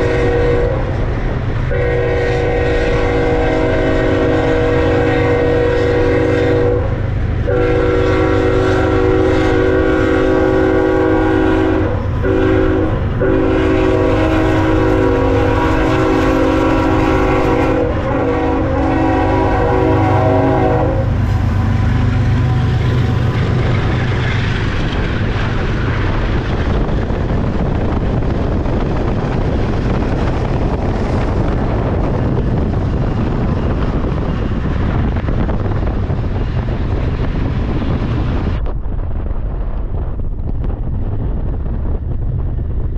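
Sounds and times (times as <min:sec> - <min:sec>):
locomotive air horn chord: 0:00.0 - 0:01.0, 0:01.7 - 0:23.9
freight train rushing and rumbling: 0:00.0 - 0:42.9.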